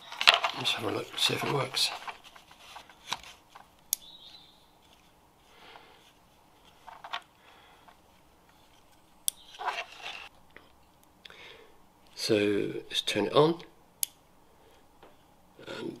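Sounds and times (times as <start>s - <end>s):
soft handling rustles: 0.0s - 11.0s.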